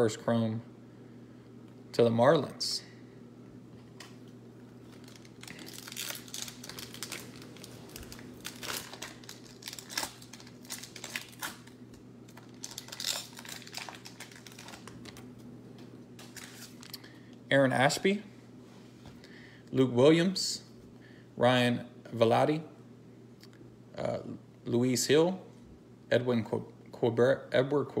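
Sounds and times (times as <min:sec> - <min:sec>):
foil wrapper crinkling and tearing: 0:04.8 - 0:15.3, 0:16.2 - 0:17.0.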